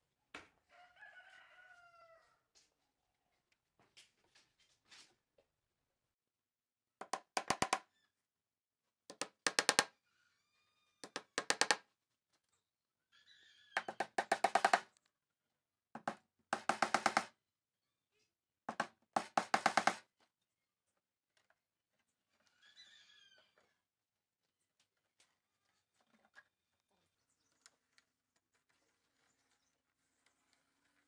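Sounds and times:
hammer driving nails into plywood: 7.0s - 7.8s, 9.1s - 9.9s, 11.0s - 11.8s, 13.8s - 14.9s, 16.0s - 17.3s, 18.7s - 20.0s.

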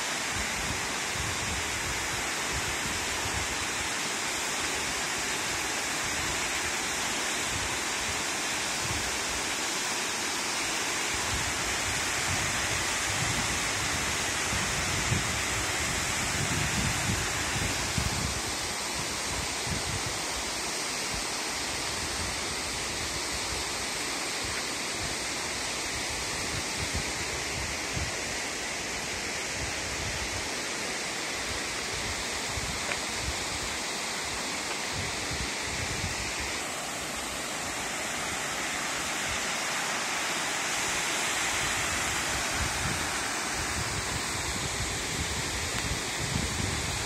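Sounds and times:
stream running over rocks: 0.0s - 47.0s
waterfall rushing: 0.0s - 47.0s
wind buffeting microphone: 42.2s - 47.0s.

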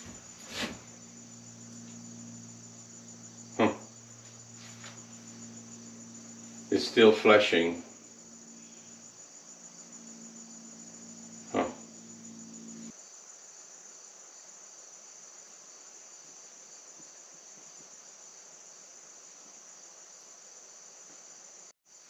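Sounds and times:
low hum: 0.0s - 12.9s
high-pitched insect chorus: 0.0s - 22.0s.

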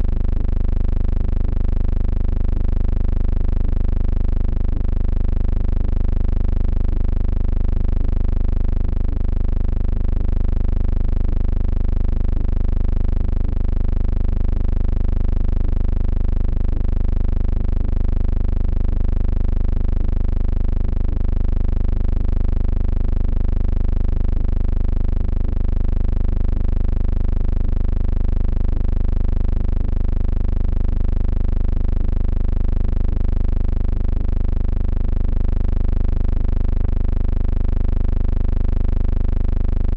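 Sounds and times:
steady low hum: 0.0s - 0.2s.

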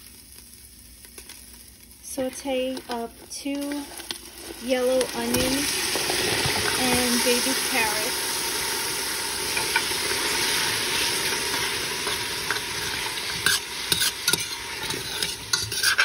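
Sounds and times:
vegetables sizzling in a pot: 0.0s - 16.0s
spoon scraping a pot: 12.0s - 16.0s.

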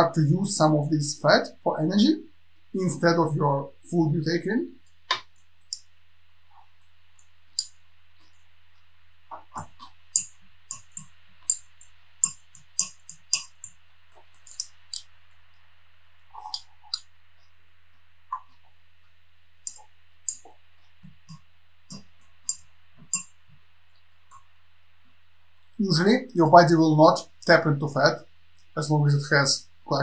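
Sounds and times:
faint steady hum: 0.0s - 30.0s
fork clicking on glass bowl: 9.6s - 15.1s, 19.7s - 20.5s, 21.2s - 23.4s.

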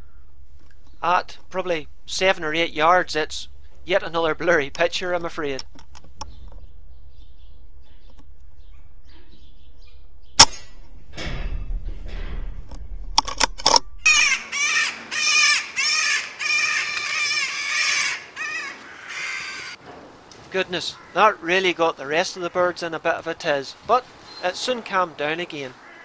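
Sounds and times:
air rifle shot: 10.4s - 13.8s
birds harsh alarm calls: 14.0s - 19.8s, 20.8s - 21.4s, 25.8s - 26.0s.

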